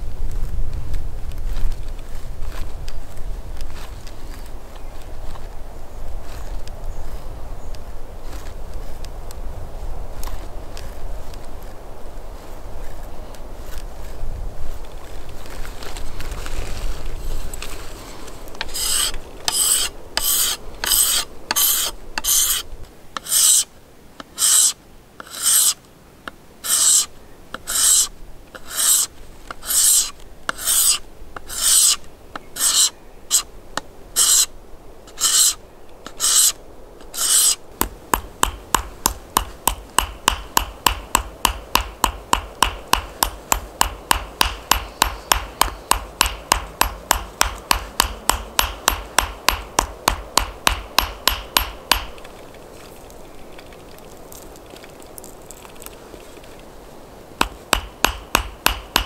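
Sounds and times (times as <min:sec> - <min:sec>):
hand file rasping: 0:18.6 - 0:22.6, 0:23.2 - 0:23.7, 0:24.3 - 0:25.8, 0:26.6 - 0:32.0, 0:32.6 - 0:33.5, 0:34.2 - 0:34.5, 0:35.1 - 0:37.6
hammer tapping rapidly: 0:38.2 - 0:52.1, 0:57.4 - 0:59.0.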